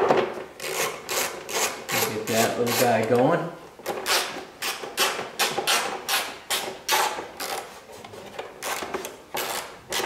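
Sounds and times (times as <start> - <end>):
hand ratchet clicking: 0.6 - 2.9.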